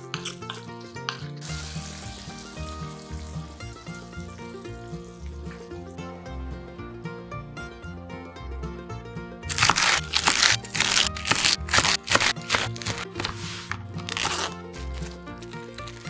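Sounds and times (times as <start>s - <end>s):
background music: 0.0s - 16.0s
knife chopping on wooden board: 9.5s - 13.7s.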